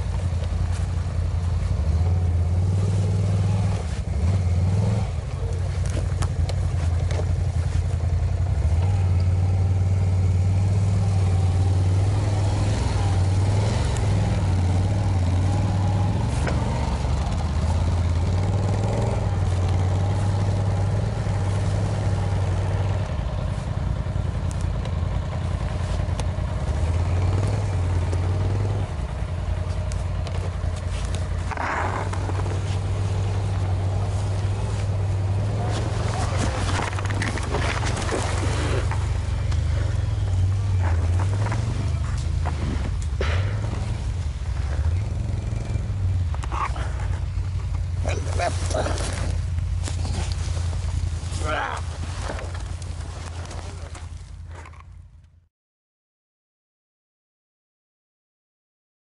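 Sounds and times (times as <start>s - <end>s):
quad bike engine under load: 0.0s - 55.4s.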